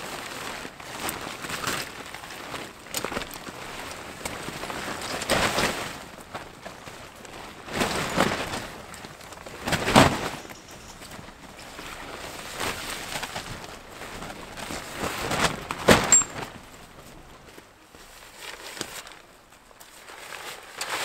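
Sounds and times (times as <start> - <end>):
nylon fabric rustling: 0.0 - 21.0.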